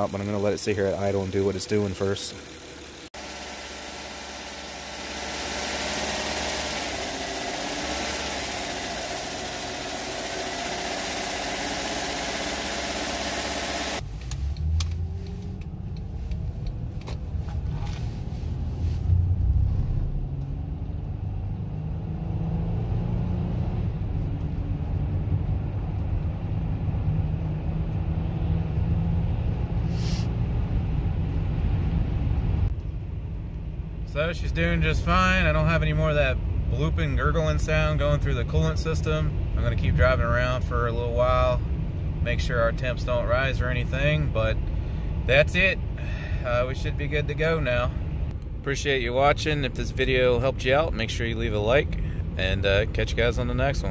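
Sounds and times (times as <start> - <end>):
car engine running: 0.0 - 19.6
engine and road drone: 0.0 - 53.9.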